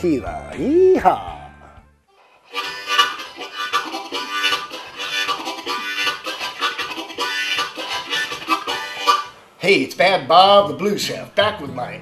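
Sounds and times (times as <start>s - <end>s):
blues harmonica: 2.1s - 9.6s.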